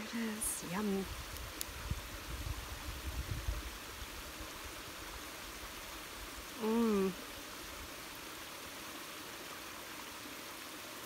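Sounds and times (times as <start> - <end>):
outdoor hiss: 0.0 - 11.0
person humming: 6.6 - 7.2.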